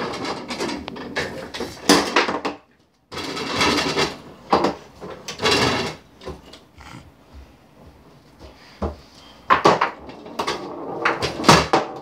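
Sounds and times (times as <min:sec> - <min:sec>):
foosball rods and ball clattering: 0:00.0 - 0:06.7, 0:09.5 - 0:12.0.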